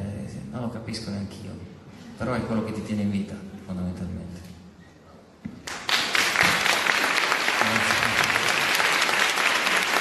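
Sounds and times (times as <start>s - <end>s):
audience applauding: 5.6s - 10.0s.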